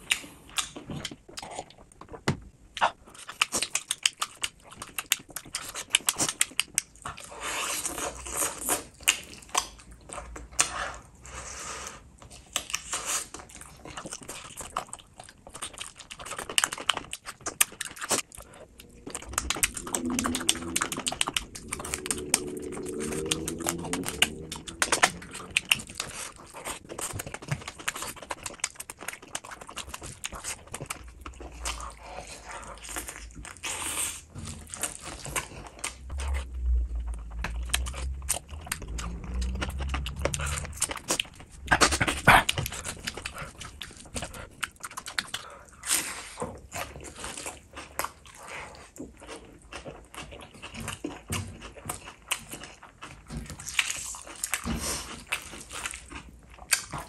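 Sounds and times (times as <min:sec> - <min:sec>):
chewing and lip smacking: 0:00.0 - 0:11.0, 0:12.2 - 0:57.0
slurping: 0:17.6 - 0:46.4
person humming: 0:18.7 - 0:25.3.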